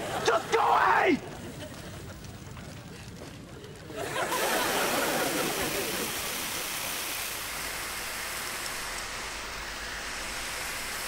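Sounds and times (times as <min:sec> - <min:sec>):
fire hose spraying water: 0:00.0 - 0:11.0.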